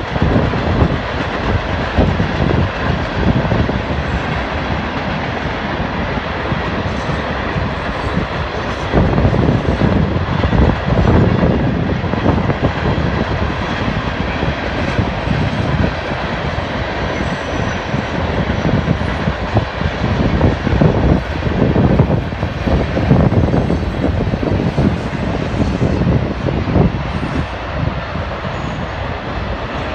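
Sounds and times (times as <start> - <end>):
train cars clattering and knocking: 0.0 - 29.9
train wheels rumbling on rail: 0.0 - 29.9.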